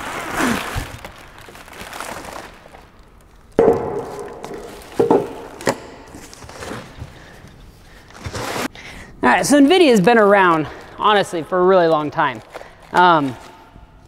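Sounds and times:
plastic packaging rustling: 0:00.0 - 0:08.7, 0:10.0 - 0:14.0
parts knocking on concrete floor: 0:03.6 - 0:06.1.

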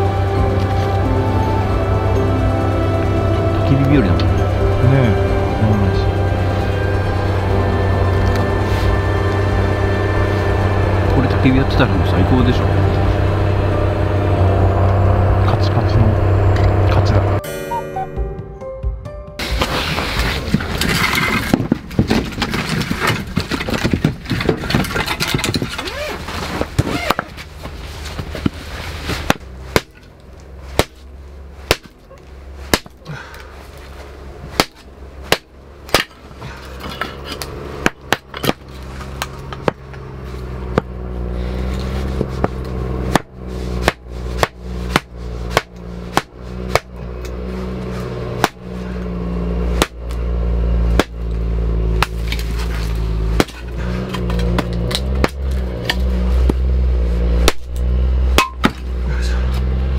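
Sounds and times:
firewood splitting knocks: 0:20.4 - 0:28.6, 0:29.2 - 0:30.1, 0:30.7 - 0:31.0, 0:31.7 - 0:32.0, 0:32.7 - 0:33.0, 0:34.5 - 0:40.0, 0:40.7 - 0:41.0, 0:42.1 - 0:47.0, 0:48.4 - 0:48.6, 0:49.8 - 0:50.2, 0:50.9 - 0:51.3, 0:52.0 - 0:56.7, 0:58.4 - 0:58.9.

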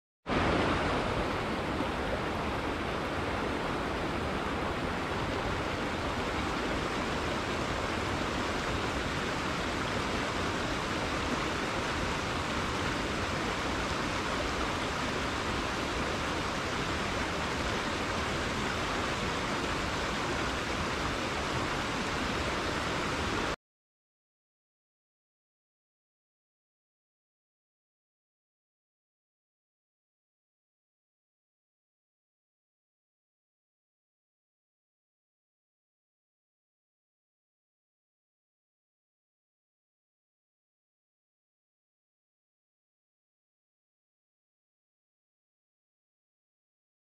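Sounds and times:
river rushing over rocks: 0:00.3 - 0:23.6.

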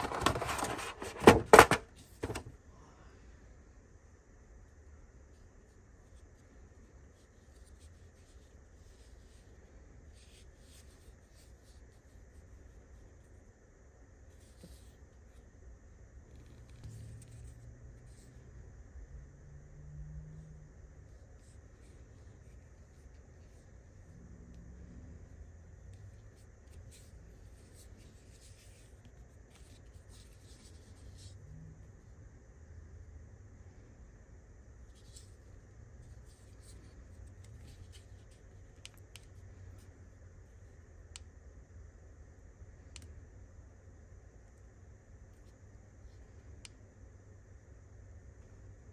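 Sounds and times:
low steady hum: 0:00.0 - 0:48.9.

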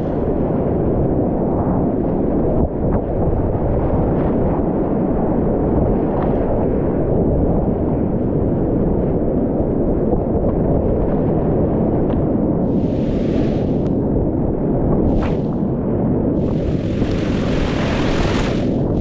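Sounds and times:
rapids roaring: 0:16.4 - 0:19.0
paddle splashes: 0:16.5 - 0:19.0.

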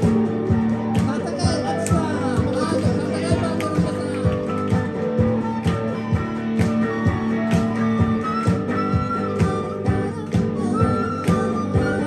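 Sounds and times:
handclaps keeping time: 0:00.0 - 0:12.0
semi-acoustic guitar: 0:00.0 - 0:12.0
flute playing: 0:04.5 - 0:12.0.

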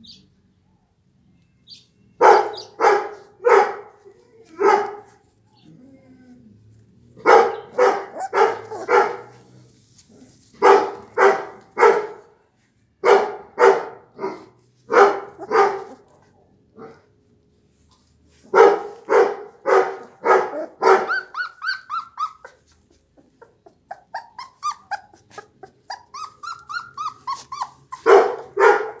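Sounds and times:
dog barking: 0:02.2 - 0:04.0, 0:04.6 - 0:05.1, 0:07.2 - 0:09.4, 0:10.6 - 0:12.3, 0:13.0 - 0:17.1, 0:18.5 - 0:21.3, 0:28.0 - 0:29.0
dog whimpering: 0:08.1 - 0:08.9, 0:20.5 - 0:28.6.

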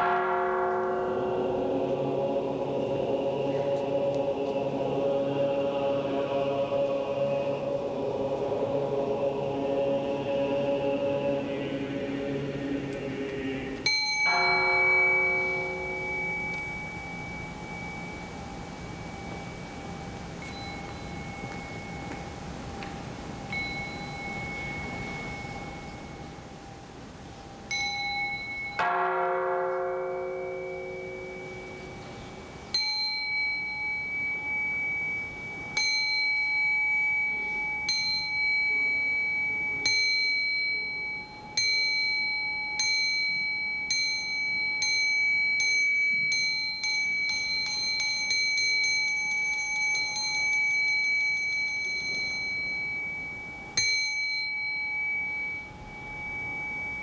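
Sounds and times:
low bell struck: 0:00.0 - 0:02.0, 0:13.9 - 0:22.2, 0:27.7 - 0:35.0
high-pitched bell strokes: 0:00.0 - 0:57.0.

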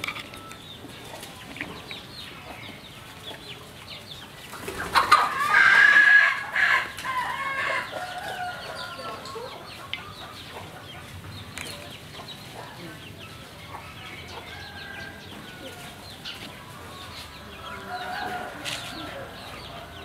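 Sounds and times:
chickens clucking faintly: 0:00.0 - 0:20.0
rooster crowing: 0:05.3 - 0:09.3, 0:17.6 - 0:20.0.

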